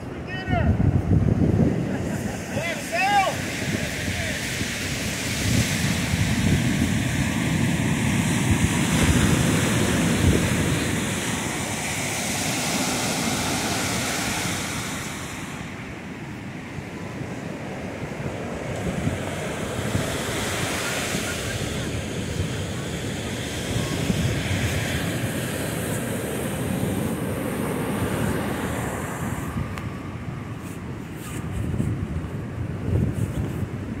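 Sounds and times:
ocean surf washing onto beach: 0.0 - 34.0
wind buffeting microphone: 0.0 - 34.0.

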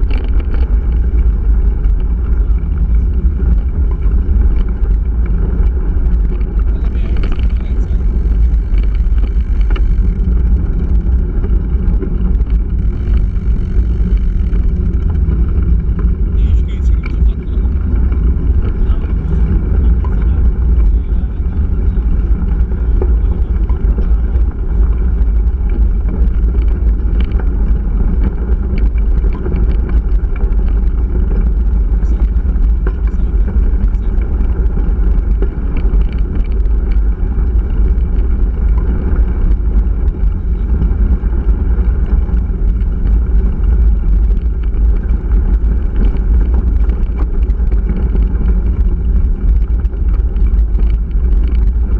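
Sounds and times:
bike clicks and rattles: 0.0 - 51.9
bike tyres rolling on gravel: 0.0 - 51.9
wind buffeting microphone: 0.0 - 51.9.

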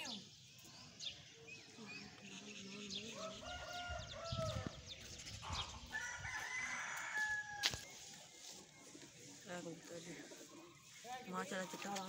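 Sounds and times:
rooster crowing: 3.2 - 4.7, 5.9 - 7.8.

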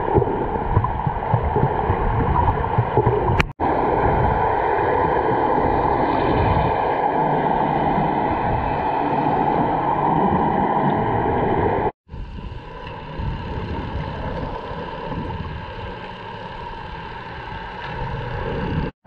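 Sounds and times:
fin kicks churning bubbles: 0.0 - 4.4
faint engine hum underwater: 0.0 - 18.9
underwater rushing: 0.0 - 18.9.

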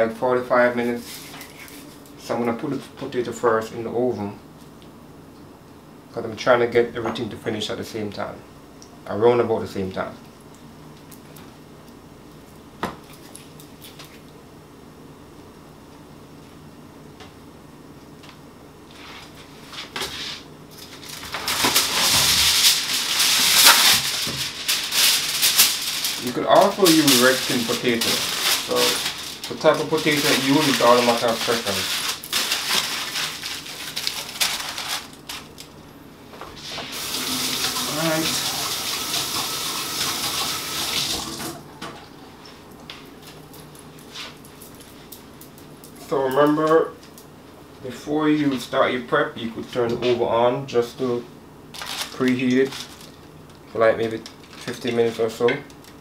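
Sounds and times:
aluminium foil crinkling: 0.9 - 2.2, 20.7 - 35.8, 51.7 - 56.0
towel rustling: 18.9 - 35.6
faucet running over hands: 36.9 - 41.5.

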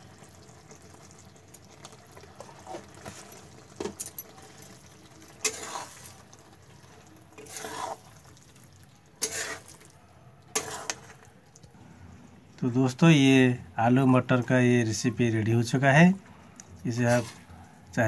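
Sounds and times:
curry simmering in a pan: 0.0 - 13.0
spatula stirring curry: 0.1 - 11.8, 16.5 - 18.0
spatula scraping and clinking on pan: 5.4 - 6.2, 7.4 - 8.0, 9.2 - 9.9, 10.5 - 11.2.

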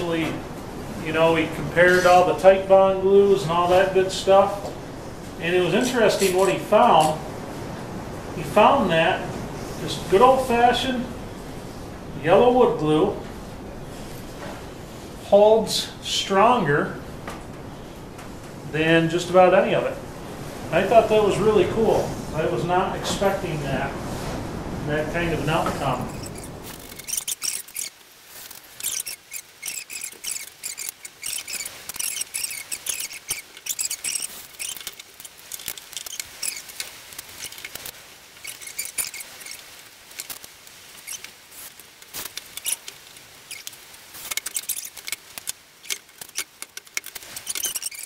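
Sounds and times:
hand tools and wood clattering: 1.1 - 7.2, 25.3 - 48.0.

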